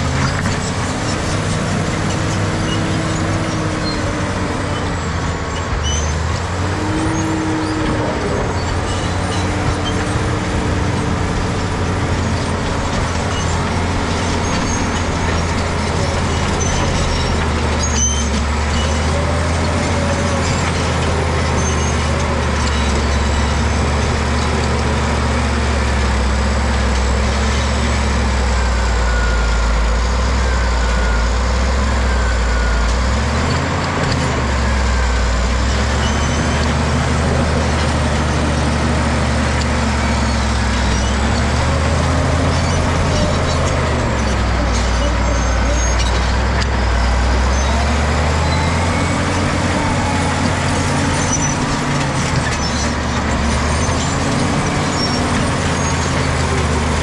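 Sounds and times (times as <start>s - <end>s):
steel tracks clanking: 0.0s - 25.0s
bulldozer diesel engine running hard: 0.0s - 57.0s.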